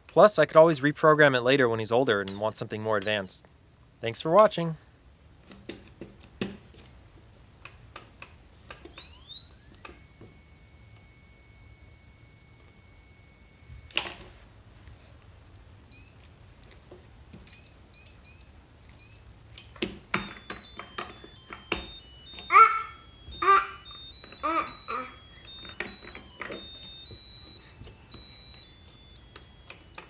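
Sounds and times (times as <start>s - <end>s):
short electronic beeps: 2.3s - 3.4s, 20.2s - 22.4s
high electronic tone gliding up: 8.9s - 14.0s, 20.3s - 30.0s.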